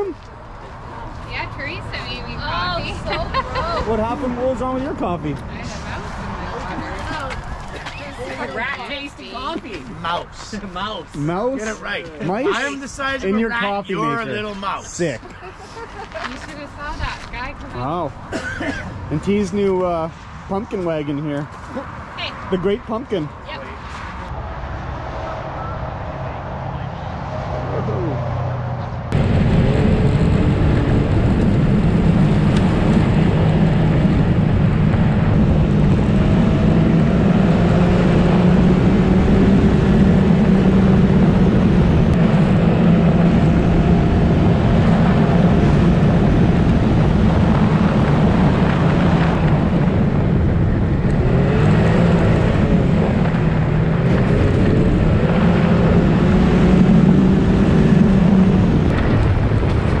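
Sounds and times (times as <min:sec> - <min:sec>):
wind: 0:00.0 - 1:00.0
off-road vehicle engine running: 0:27.8 - 1:00.0.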